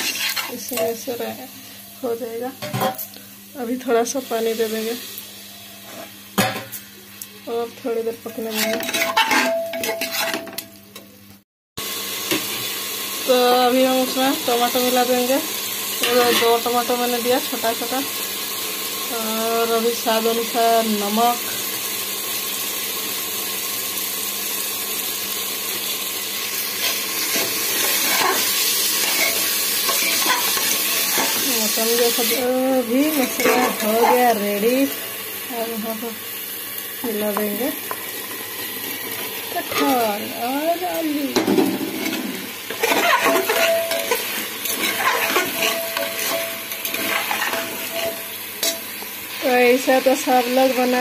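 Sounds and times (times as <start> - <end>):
spatula scraping metal pot: 0.0 - 0.7, 8.4 - 10.4, 42.0 - 48.8
masala sizzling: 0.0 - 51.0.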